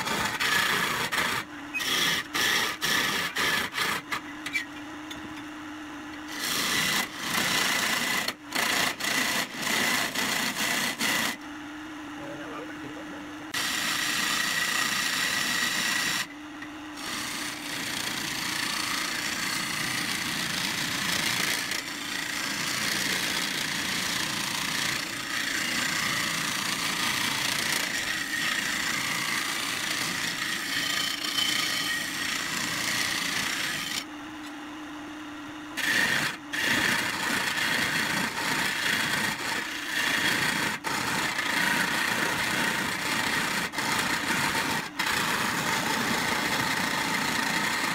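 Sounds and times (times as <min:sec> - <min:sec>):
chisel shaving wood on lathe: 0:00.0 - 0:04.2, 0:17.0 - 0:34.0, 0:35.8 - 0:47.9.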